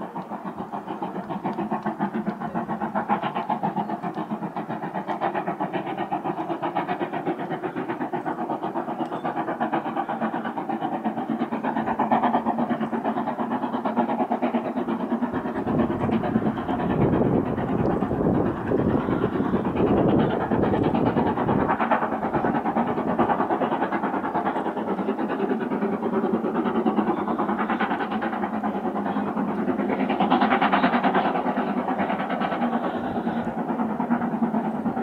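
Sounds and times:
train rhythmic clatter: 0.0s - 35.0s.

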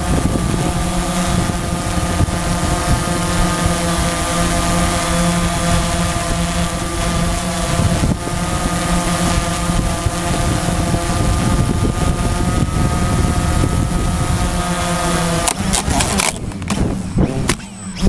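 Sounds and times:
drone propellers whining: 0.0s - 18.0s
wind noise on microphone: 0.0s - 18.0s
drone crashing into ground: 15.8s - 18.0s.

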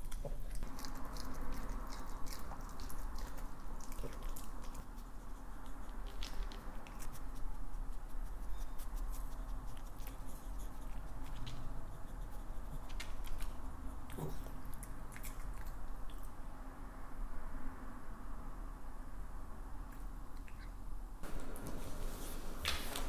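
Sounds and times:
dog licking and chewing food: 0.0s - 16.4s
faint steady hum: 0.0s - 23.0s.

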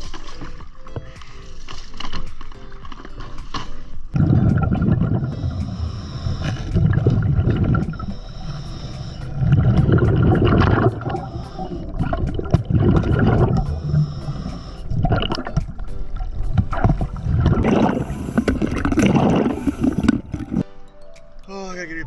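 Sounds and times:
exhaled bubbles gurgling: 4.2s - 20.6s
regulator inhale hiss: 5.2s - 6.8s, 7.8s - 9.6s, 11.0s - 12.2s, 13.5s - 15.1s.

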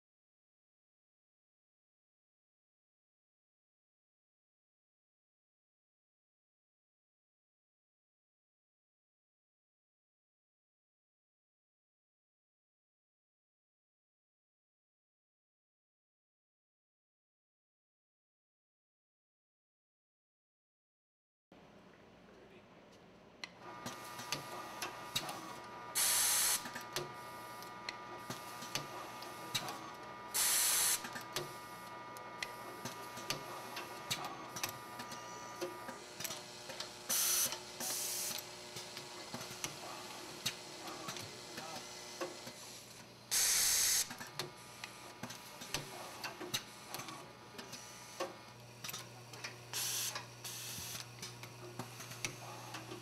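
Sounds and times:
compressed air hisses: 26.0s - 26.6s, 30.4s - 31.0s, 43.3s - 44.0s.

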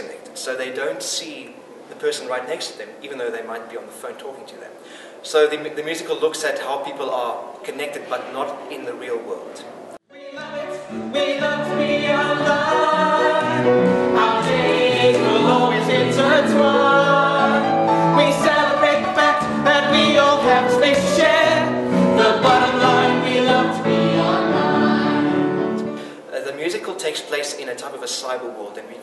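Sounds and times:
cast singing in chorus: 10.1s - 25.8s.

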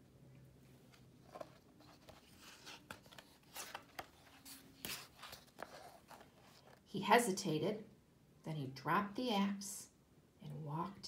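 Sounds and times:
book pages turning: 0.7s - 6.8s.

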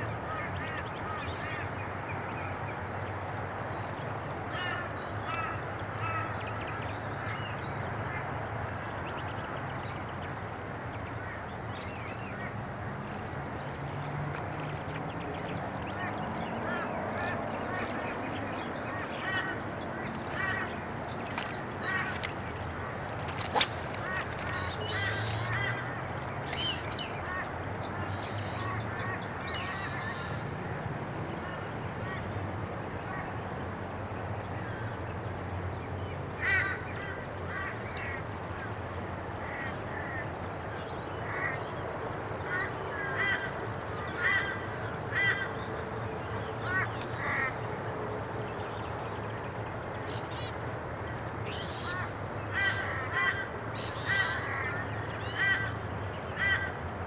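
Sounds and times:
birds calling quick repeated notes: 22.8s - 25.9s.

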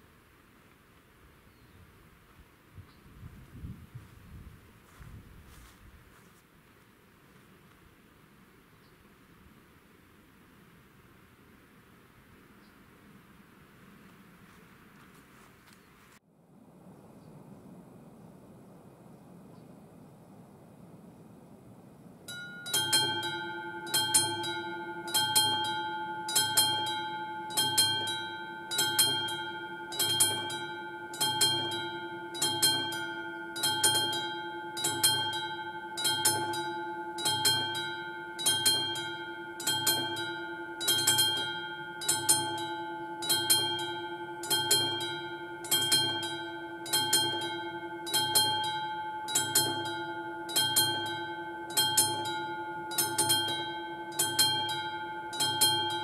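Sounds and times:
level crossing warning bell ringing: 22.3s - 56.0s.

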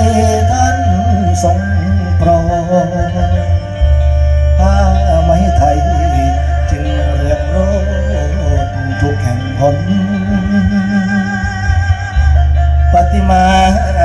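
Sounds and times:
instrumental accompaniment with bass: 0.0s - 14.0s.

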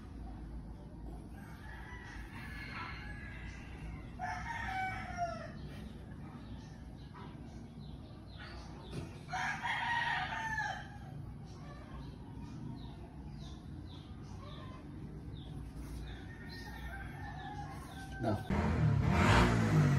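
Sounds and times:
rooster crowing: 1.4s - 5.7s, 9.3s - 11.2s, 16.0s - 18.5s.

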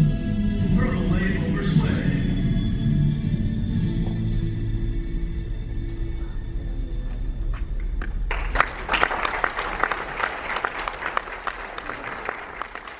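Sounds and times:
music: 0.0s - 12.9s
audience clapping: 8.0s - 12.9s.

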